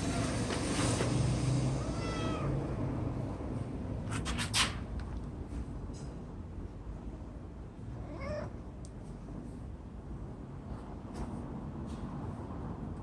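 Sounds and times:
cat meowing faintly: 1.8 - 2.8, 8.0 - 8.6.

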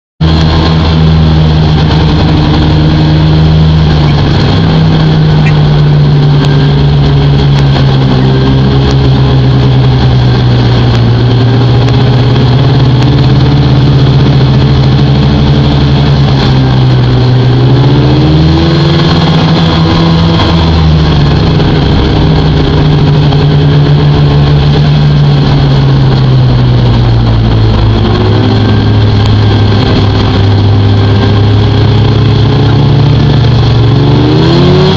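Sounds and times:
snowmobile engine running: 0.2 - 34.9
steady rushing noise: 0.2 - 34.9.

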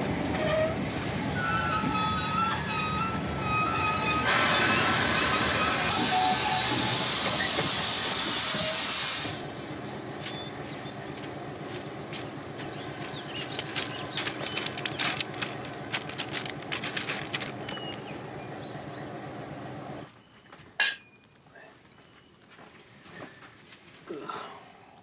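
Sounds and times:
locomotive air hissing: 0.8 - 20.1
footsteps crunching on ballast: 10.1 - 19.0, 20.0 - 24.2.

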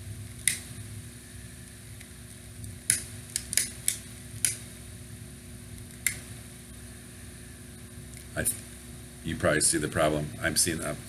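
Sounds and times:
electric fan humming: 0.0 - 11.0
lighter spark igniter clicking: 0.3 - 0.8, 2.0 - 4.8, 5.7 - 6.4.

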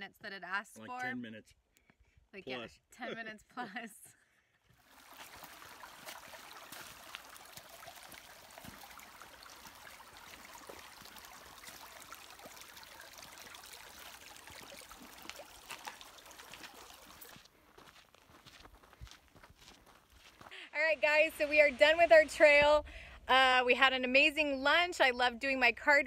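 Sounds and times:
creek trickling over stones: 4.7 - 19.5
small bubbling drips: 4.8 - 17.6.

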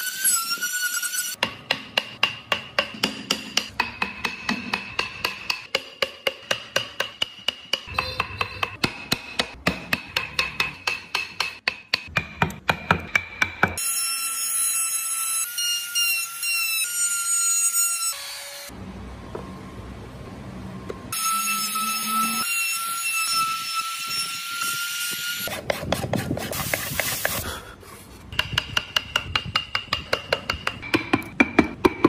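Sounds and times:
chisel striking wood: 1.4 - 13.8, 28.3 - 32.0.

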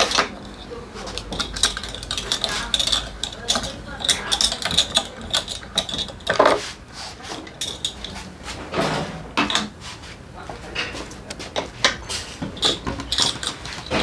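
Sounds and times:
metal tools clinking: 0.0 - 6.6, 7.4 - 8.2, 12.4 - 14.0.

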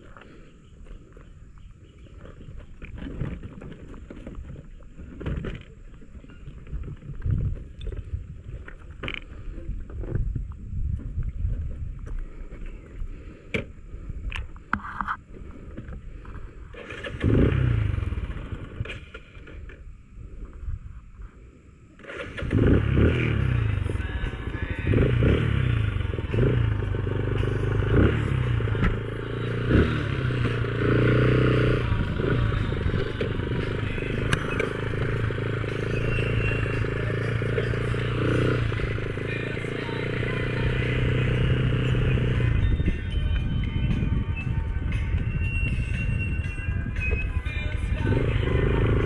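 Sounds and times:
motorcycle engine revving: 16.7 - 19.1, 22.0 - 43.1, 47.9 - 49.0.

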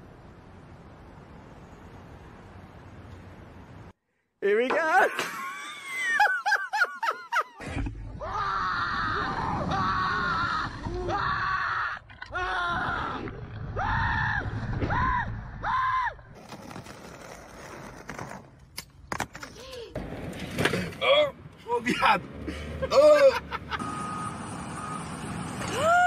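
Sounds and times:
young man screaming: 13.8 - 16.2, 25.7 - 26.0.

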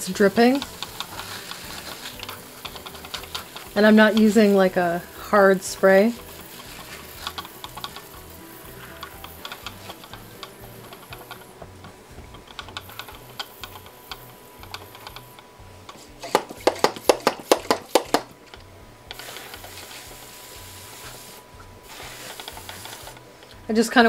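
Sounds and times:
hiss of pressure sprayer: 0.0 - 11.5, 19.1 - 23.2
sprayer pump clicks: 6.5 - 8.2, 9.0 - 11.5, 12.4 - 20.0, 22.2 - 23.6.

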